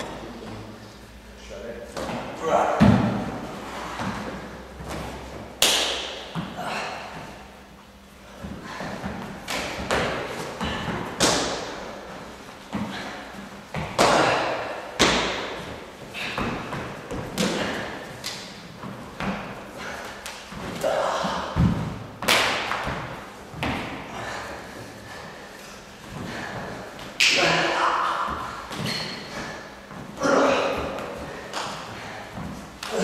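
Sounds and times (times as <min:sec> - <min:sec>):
slaps and thuds of hits: 0:04.0 - 0:06.6, 0:08.4 - 0:11.8, 0:13.7 - 0:24.0.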